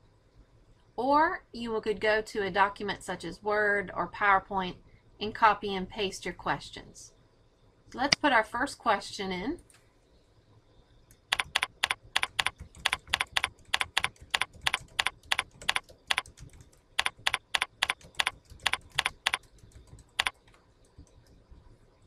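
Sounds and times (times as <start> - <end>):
computer keyboard typing: 11.1 - 21.4.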